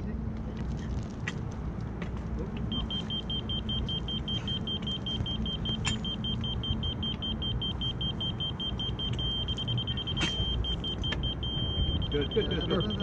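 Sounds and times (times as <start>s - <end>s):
rapid high-pitched electronic beeping: 2.7s - 13.0s.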